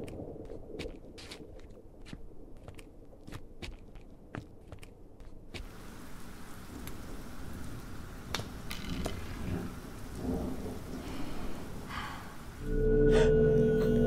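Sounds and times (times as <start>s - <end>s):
steady rain: 5.6s - 14.0s
thunder rumbling: 5.8s - 14.0s.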